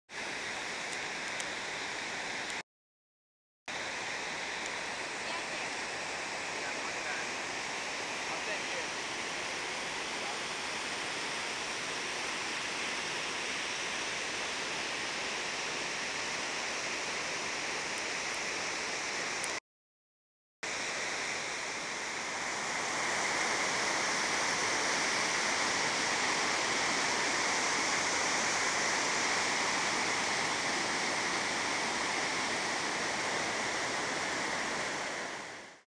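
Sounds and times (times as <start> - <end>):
water rushing over boulders: 0.1 - 2.6, 3.7 - 19.6, 20.6 - 35.8.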